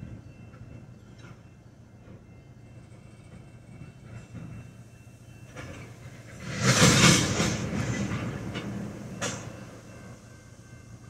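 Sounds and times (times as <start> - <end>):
freight cars rumbling on rails: 0.0 - 11.0
clatter of wheels and metal: 5.4 - 10.2.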